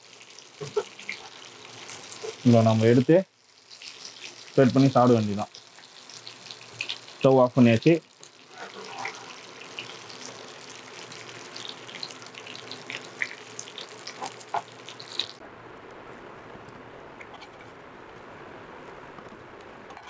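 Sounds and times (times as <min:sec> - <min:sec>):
chicken sizzling in oil: 0:00.0 - 0:15.4
spatula scraping a pan: 0:08.4 - 0:10.0.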